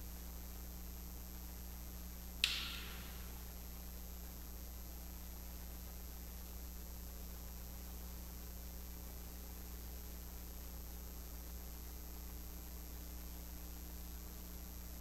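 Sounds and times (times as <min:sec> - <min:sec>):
low electrical hum: 0:00.0 - 0:15.0
even hiss: 0:02.4 - 0:03.5.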